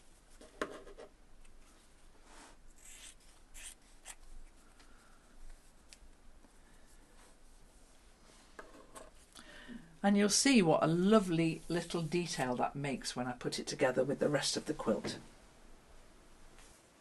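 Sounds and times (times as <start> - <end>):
soft brushing: 0.1 - 9.3, 10.4 - 12.5.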